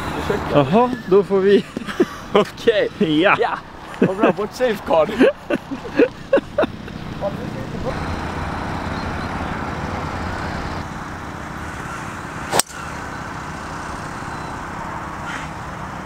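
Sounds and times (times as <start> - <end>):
golf club striking ball: 12.5 - 12.9.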